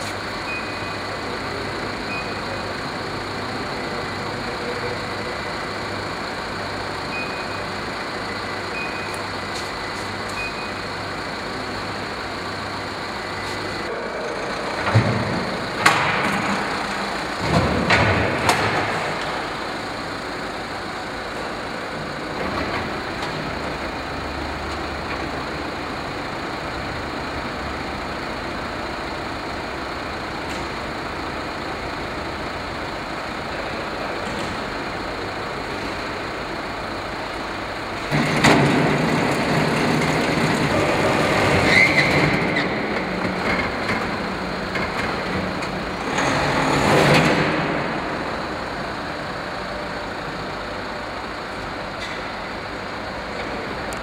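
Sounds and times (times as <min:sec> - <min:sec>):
workshop noise: 0:00.0 - 0:23.7
brake tester motors rumbling: 0:00.0 - 0:54.0.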